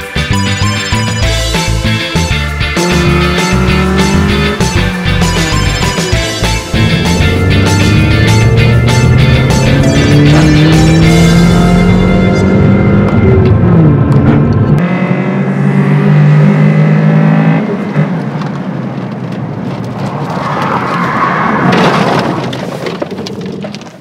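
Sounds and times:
tyre and road noise: 0.0 - 24.0
car engine running: 0.6 - 14.8.

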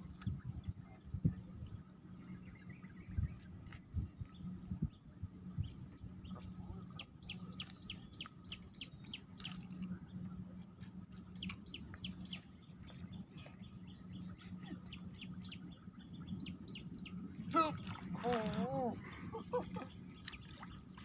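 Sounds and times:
steady low hum: 0.0 - 21.0
songbird calling: 5.6 - 10.2, 11.3 - 21.0.

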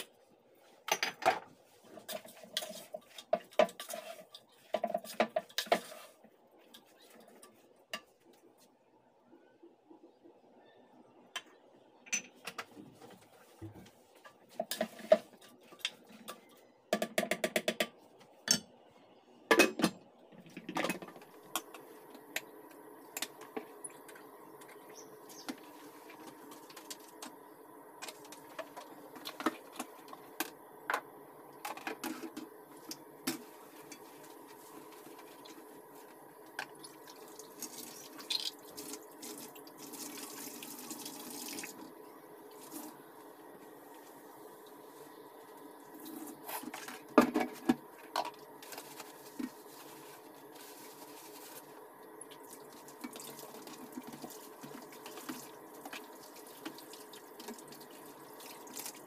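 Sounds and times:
pot and utensils clattering: 0.9 - 8.1, 14.2 - 17.9, 19.5 - 21.9.

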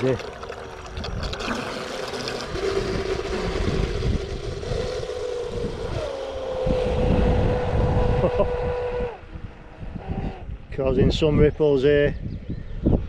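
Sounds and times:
electric motor whining: 1.1 - 9.3
wind rumble on microphone: 2.4 - 13.0.

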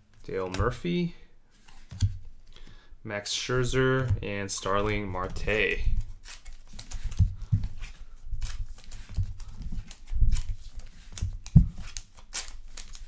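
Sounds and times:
trading cards knocking and tapping: 6.8 - 13.0.

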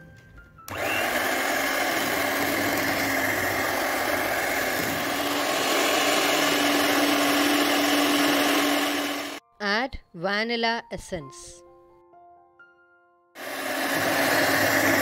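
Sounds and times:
electric hand mixer running: 0.7 - 9.4, 13.4 - 15.0.

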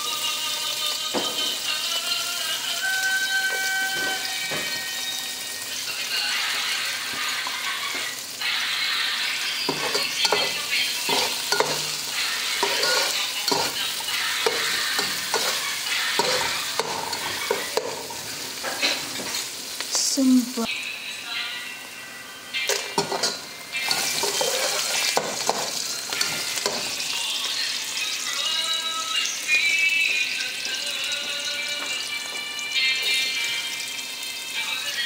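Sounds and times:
onions sizzling in hot oil: 0.0 - 22.0, 22.6 - 35.0
spatula scraping a pan: 9.6 - 19.5, 23.0 - 27.1.

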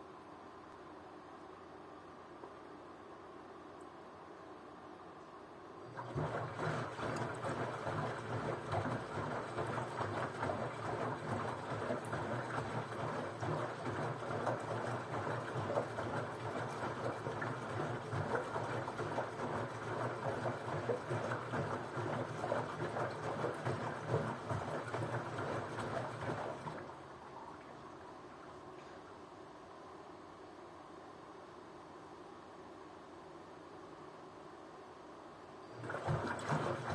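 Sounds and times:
low machine hum: 0.0 - 36.9
water sloshing in washing machine: 5.9 - 28.6, 35.6 - 36.9.

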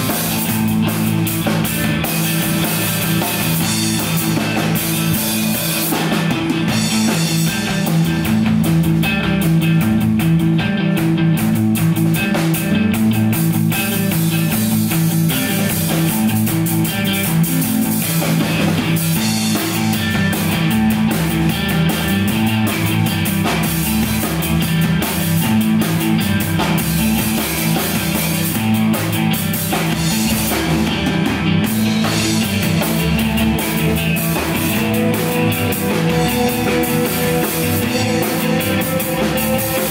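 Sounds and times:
bass guitar: 0.0 - 39.9
drum kit: 0.0 - 39.9
electric guitar: 0.0 - 39.9.

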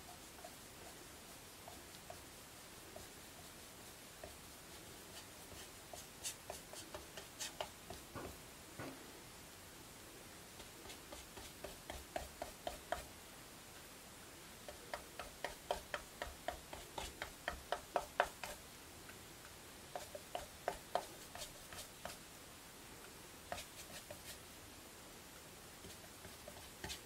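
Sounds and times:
paintbrush ticking strokes: 0.0 - 8.4, 10.5 - 13.2, 14.6 - 22.4, 23.0 - 24.6, 25.8 - 27.0.

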